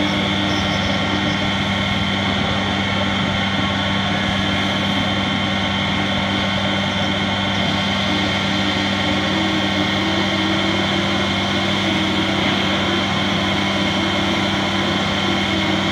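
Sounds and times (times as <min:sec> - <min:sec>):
low machine hum: 0:00.0 - 0:15.9
router whine and cutting noise: 0:00.0 - 0:15.9.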